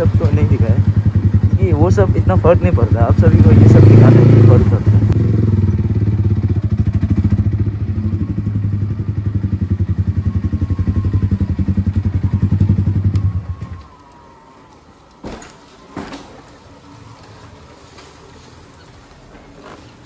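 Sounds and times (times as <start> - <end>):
motorcycle engine pulsing low revs: 0.0 - 14.5.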